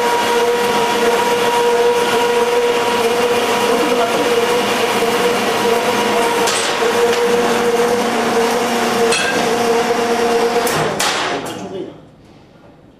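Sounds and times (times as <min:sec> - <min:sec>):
band saw cutting steel pipes: 0:00.0 - 0:11.4
machine hum: 0:00.0 - 0:12.9.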